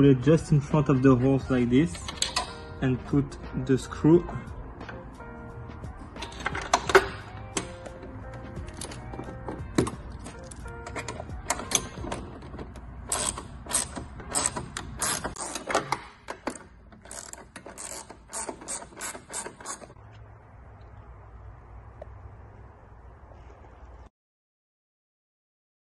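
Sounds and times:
metallic clicking and ratcheting: 8.6s - 20.0s
faint low hum: 20.0s - 24.1s.

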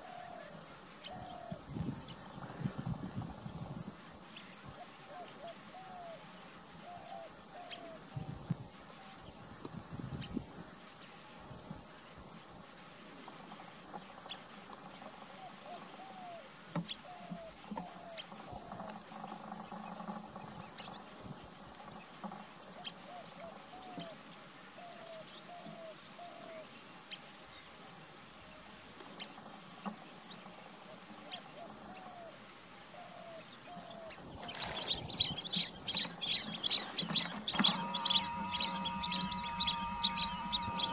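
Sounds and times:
insects shrilling: 33.9s - 40.9s.

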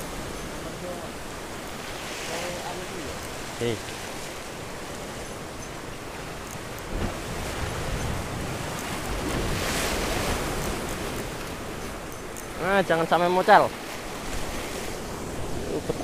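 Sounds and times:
wind on microphone: 0.0s - 12.7s, 14.1s - 16.0s
sea waves washing ashore: 0.0s - 16.0s.

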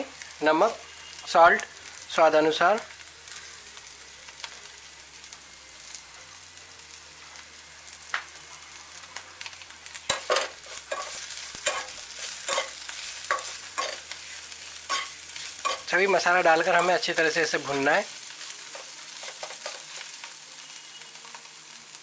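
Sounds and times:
pods sizzling in oil: 0.0s - 22.0s
spoon scraping and clinking pan: 10.1s - 14.0s, 14.9s - 15.9s.

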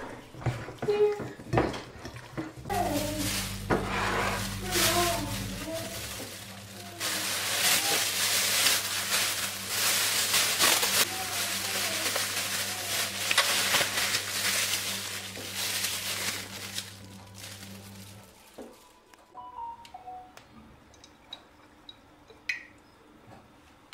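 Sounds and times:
plastic bag rustling: 2.6s - 19.2s
low hum: 2.7s - 7.0s.

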